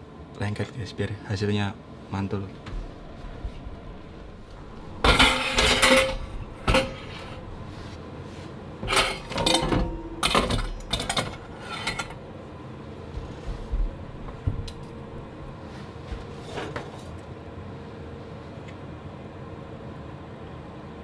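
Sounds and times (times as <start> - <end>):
metal bowl and spoon clattering: 5.0 - 7.5, 8.9 - 12.2.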